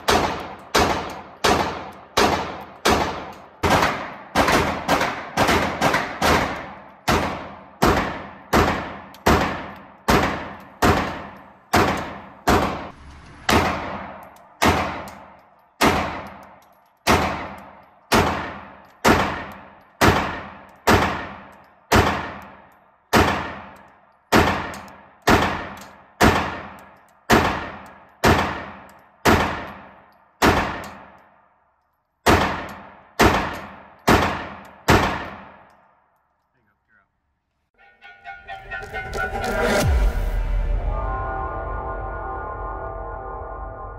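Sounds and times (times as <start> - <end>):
handgun shots with ringing echo: 0.0 - 31.4, 32.2 - 35.9.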